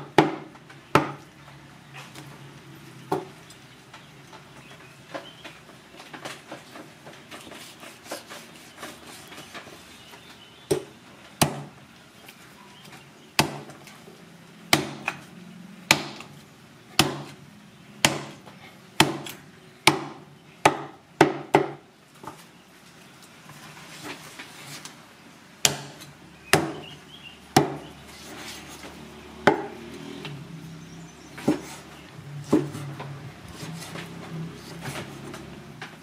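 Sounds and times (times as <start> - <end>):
knife chopping on wooden board: 27.6 - 27.9, 31.4 - 31.8, 32.5 - 32.9.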